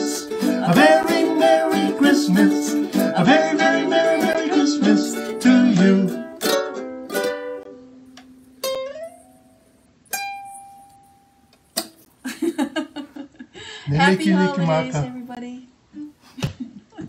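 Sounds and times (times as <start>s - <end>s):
ukuleles strumming and plucking: 0.0s - 12.1s.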